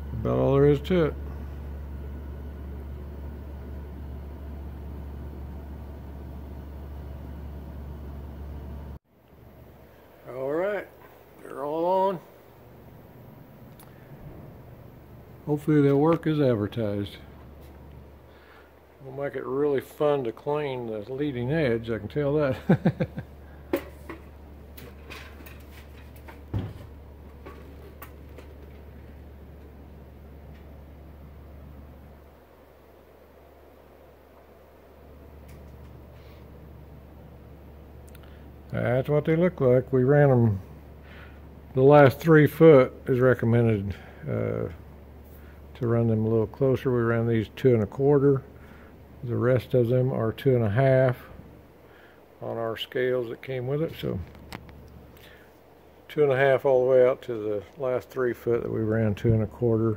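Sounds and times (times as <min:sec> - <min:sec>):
machine humming with air rush: 0:00.0 - 0:38.8, 0:40.2 - 0:45.9.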